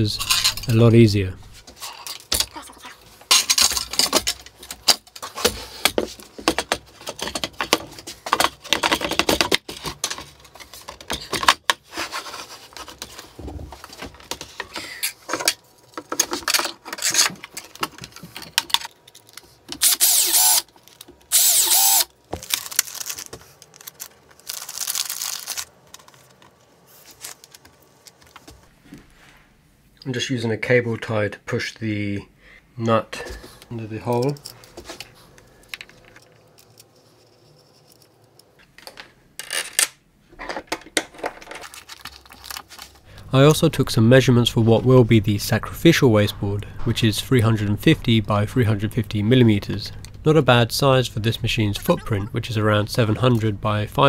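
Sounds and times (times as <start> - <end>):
power tool bursts: 19.8 - 20.6, 21.3 - 22.1.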